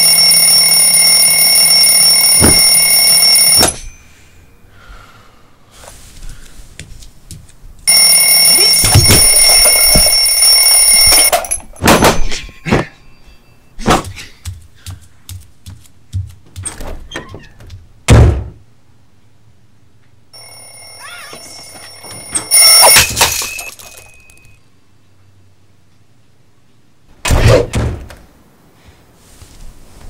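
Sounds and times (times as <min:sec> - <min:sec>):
ringing tone: 0:00.0 - 0:04.6, 0:07.9 - 0:11.9, 0:20.4 - 0:24.6
cartoon knocks and thuds: 0:02.4 - 0:02.7, 0:16.1 - 0:18.6, 0:27.2 - 0:28.2.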